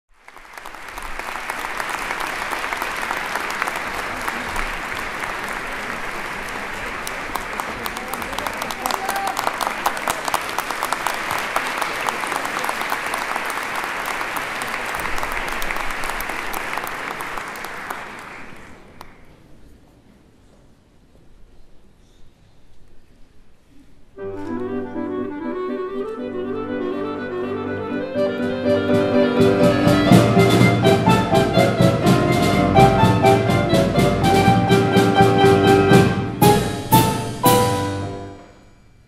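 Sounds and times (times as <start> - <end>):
audience applauding: 0.1 - 19.4.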